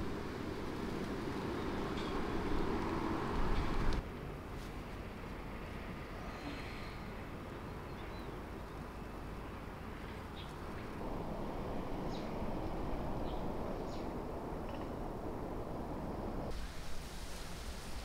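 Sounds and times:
steady rushing noise: 0.0 - 4.5, 10.7 - 18.0.

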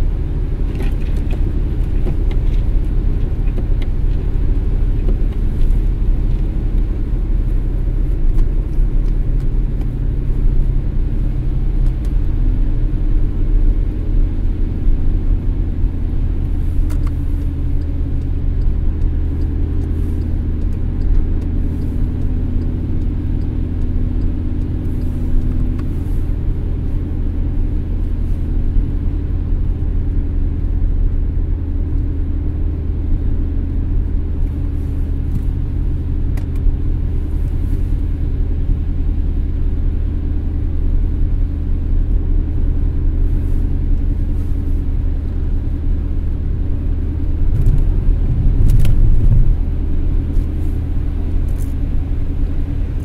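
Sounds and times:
car road and engine noise: 0.0 - 53.0
low hum: 36.8 - 53.0.

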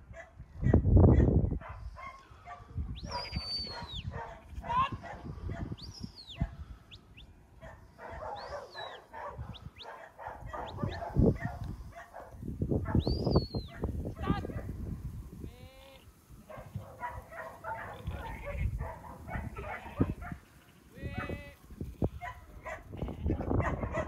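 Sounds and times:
shepherd's whistles: 3.0 - 4.1, 5.8 - 6.5, 8.4 - 9.0, 13.0 - 13.8
sheep bleating: 15.4 - 16.1, 19.6 - 22.3, 22.9 - 23.5.

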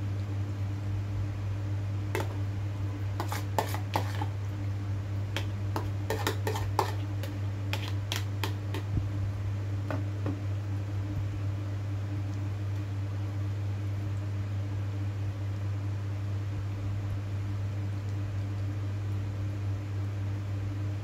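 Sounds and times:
steady low hum: 0.0 - 21.0
spoon scraping plastic bowl: 2.2 - 2.4, 3.2 - 4.4, 5.4 - 8.9.

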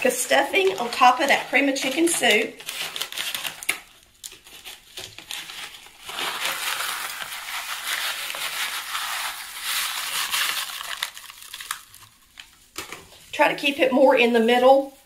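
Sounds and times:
packet crinkling: 0.0 - 13.1
dry crumbs pouring: 5.8 - 12.2.

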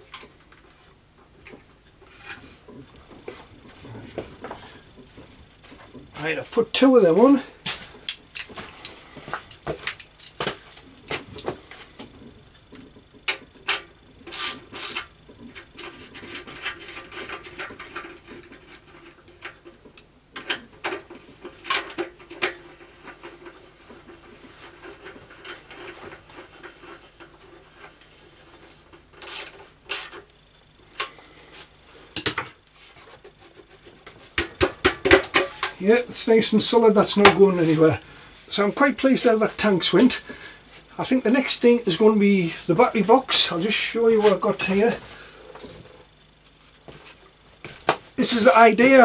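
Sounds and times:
metal tools clinking and scraping: 32.2 - 32.6.

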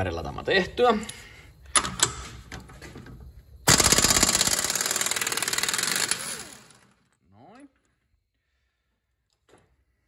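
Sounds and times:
impact wrench rattling: 3.7 - 7.0.

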